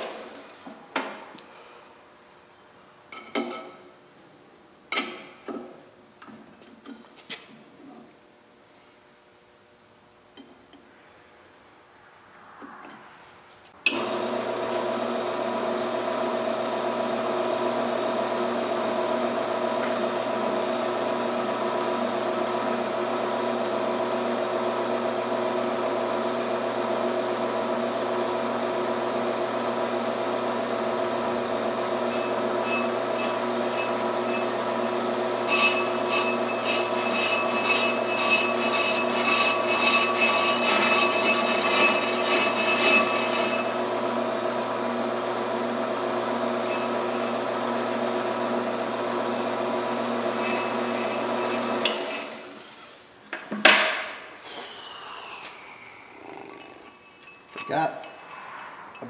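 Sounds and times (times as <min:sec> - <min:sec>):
brake lathe motor humming: 0:13.9 - 0:52.8
cutting bits scraping rotor: 0:31.6 - 0:44.0, 0:46.3 - 0:52.6.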